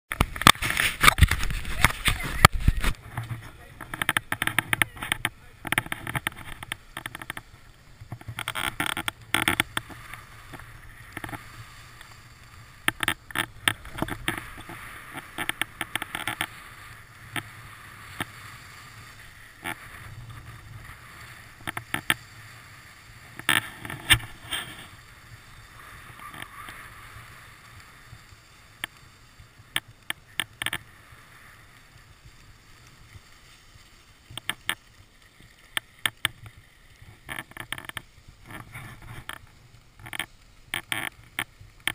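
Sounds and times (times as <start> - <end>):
sharp clicks and knocks: 0.1 - 11.4, 12.8 - 16.5
skis scraping on snow: 0.1 - 41.9.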